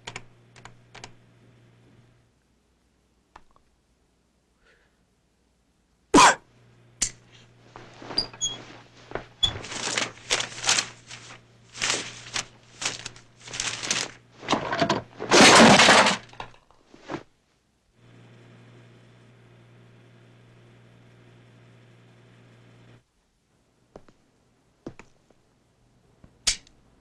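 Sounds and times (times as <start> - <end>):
knocks and rattles: 9.2 - 16.8.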